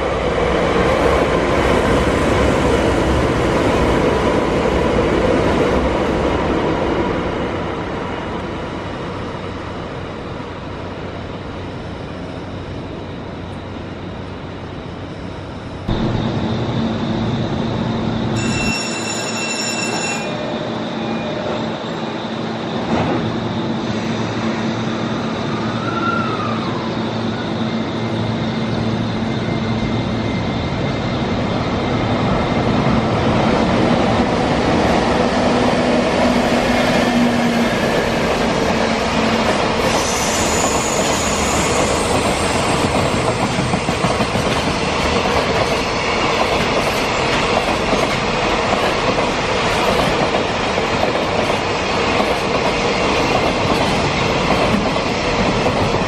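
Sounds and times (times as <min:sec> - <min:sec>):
train wheels rumbling on rail: 0:00.0 - 0:56.0
wheel squeal: 0:18.3 - 0:22.2, 0:39.8 - 0:43.4
clattering train wheels: 0:36.1 - 0:56.0.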